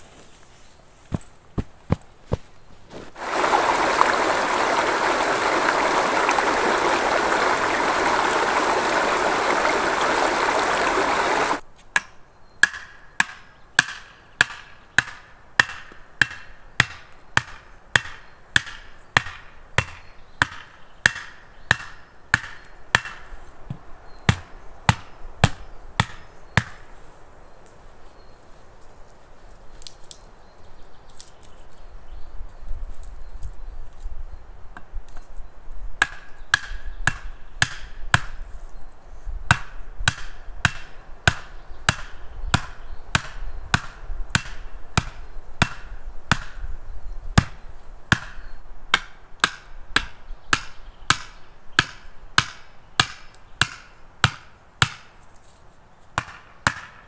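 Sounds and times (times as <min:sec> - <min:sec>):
steady rushing noise: 0:03.2 - 0:11.6.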